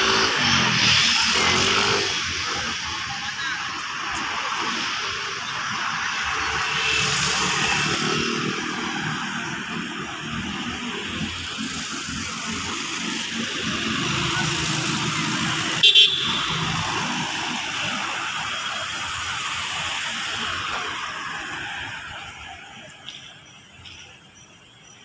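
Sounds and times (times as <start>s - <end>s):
motorcycle passing: 0.0s - 3.4s, 6.1s - 22.7s
road traffic passing: 0.0s - 25.0s
car horn toots: 15.8s - 16.6s.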